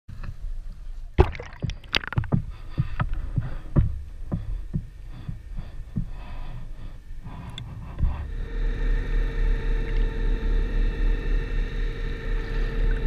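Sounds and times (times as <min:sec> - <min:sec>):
muffled underwater rumble: 0:00.1 - 0:13.0
water sloshing around camera housing: 0:01.2 - 0:02.4.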